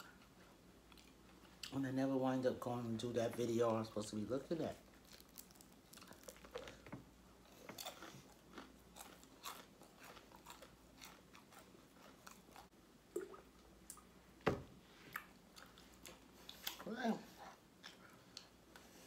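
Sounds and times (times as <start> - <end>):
crisp chewing crunches: 4.8 - 12.7.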